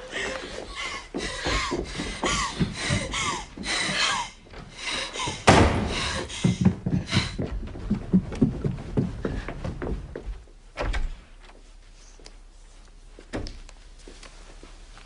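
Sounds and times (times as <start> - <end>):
light knocks and thuds: 5.3 - 11.2
loud slam: 5.5 - 6.2.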